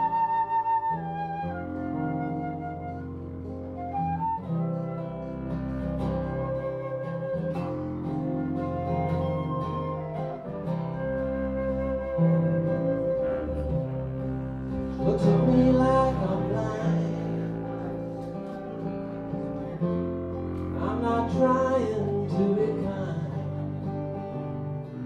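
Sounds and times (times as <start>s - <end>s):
acoustic guitar strumming: 0.0s - 25.0s
flute: 0.0s - 25.0s
plucked upright bass: 4.8s - 25.0s
person singing: 14.7s - 18.4s, 20.6s - 24.1s.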